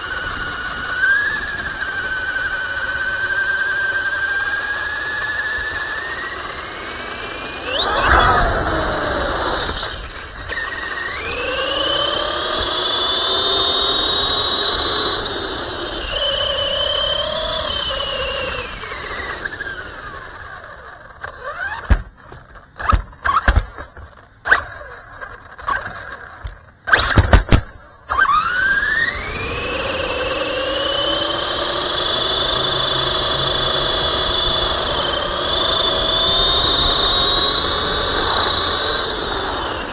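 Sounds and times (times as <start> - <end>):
electric motor whining: 0.0 - 22.1, 22.8 - 39.9
sharp knocks and clicks: 21.8 - 24.3.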